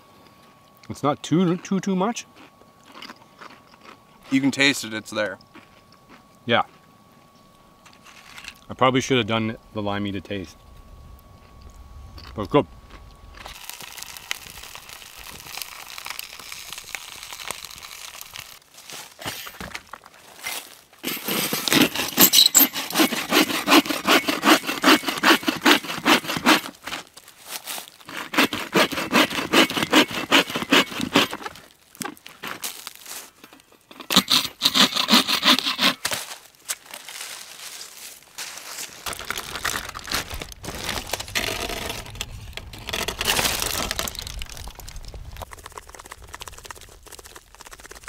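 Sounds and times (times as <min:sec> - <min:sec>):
hand saw cutting wood: 0:21.0 - 0:27.0, 0:28.0 - 0:31.6, 0:34.0 - 0:36.2.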